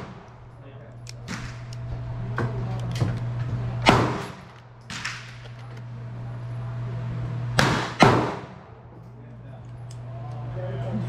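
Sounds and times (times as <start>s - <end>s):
gunshots: 0.0s - 0.3s, 1.2s - 1.8s, 3.8s - 5.4s, 7.6s - 8.7s
steady low hum: 0.0s - 11.0s.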